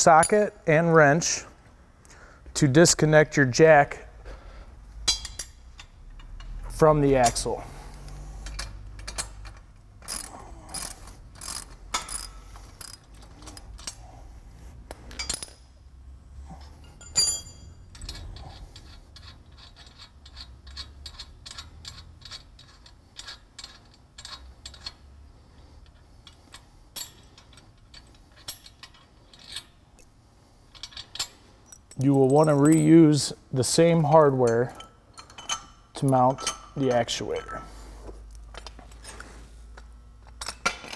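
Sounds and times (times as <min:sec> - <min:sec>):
metal parts tapping: 0:08.4 - 0:14.2, 0:15.1 - 0:15.7.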